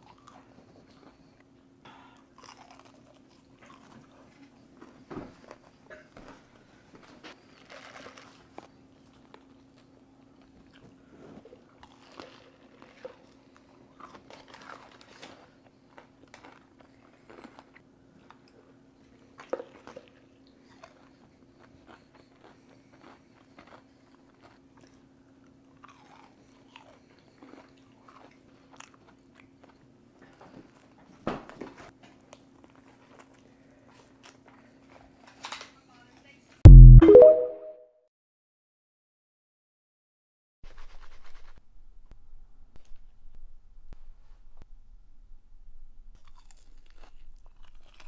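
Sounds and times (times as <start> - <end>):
crunchy chewing of fried chicken: 0.0 - 36.4, 46.1 - 48.0.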